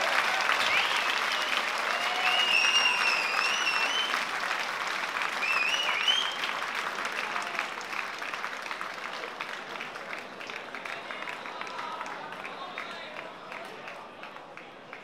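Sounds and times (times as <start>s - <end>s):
crowd clapping and cheering: 0.0s - 15.0s
shrill whistles: 0.6s - 4.2s, 5.4s - 6.5s.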